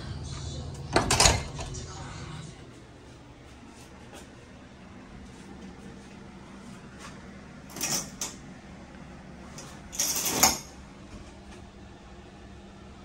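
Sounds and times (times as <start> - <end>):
steady low hum: 0.0 - 13.0
door opening and closing: 0.8 - 1.8.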